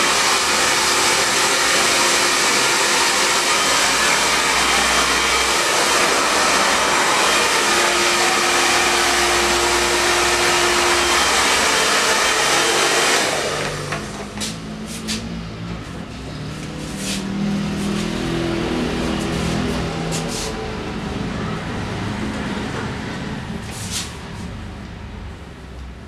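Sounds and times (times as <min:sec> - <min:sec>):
hair dryer blowing: 0:00.0 - 0:15.4, 0:16.6 - 0:21.5.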